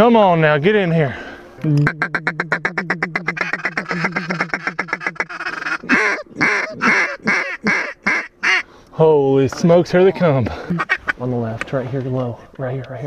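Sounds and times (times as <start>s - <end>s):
duck call chatter: 1.8s - 8.6s, 10.6s - 11.2s
duck call quacks: 1.8s - 8.6s, 10.7s - 11.2s.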